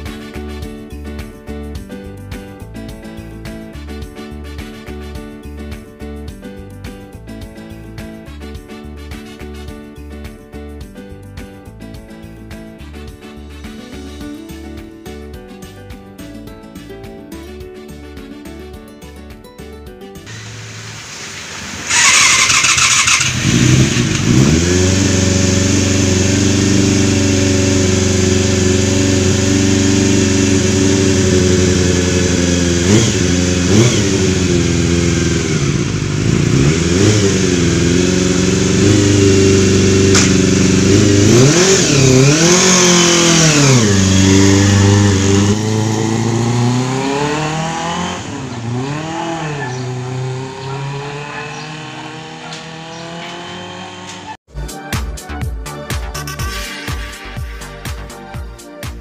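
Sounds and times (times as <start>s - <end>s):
motorcycle engine idling and revving: 20.3s - 54.4s
motorcycle engine starting: 20.3s - 54.4s.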